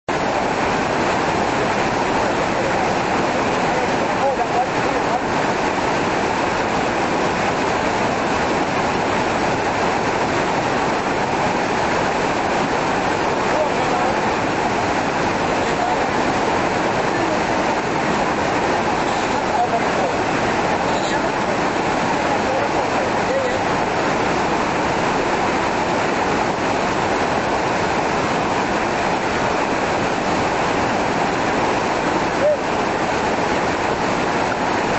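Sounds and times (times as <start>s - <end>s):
water rushing over boulders: 0.1s - 34.9s.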